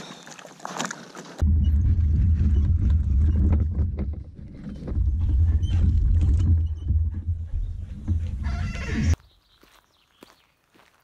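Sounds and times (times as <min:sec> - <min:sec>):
canoe hull rumbling over gravel: 0:00.6 - 0:08.5
knocks and rattles: 0:01.4 - 0:09.2.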